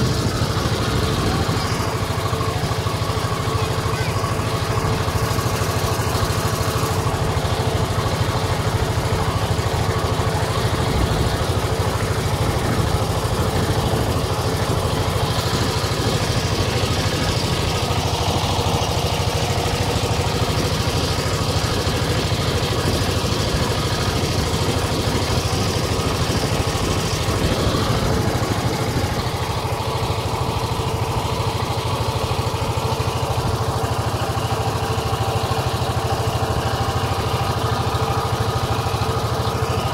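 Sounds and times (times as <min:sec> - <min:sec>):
motorboat engine droning: 0:00.0 - 0:39.9.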